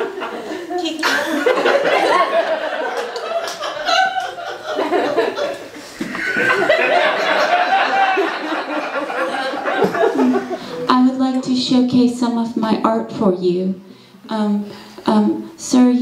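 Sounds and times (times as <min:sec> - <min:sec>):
crowd laughing: 0:00.0 - 0:10.9.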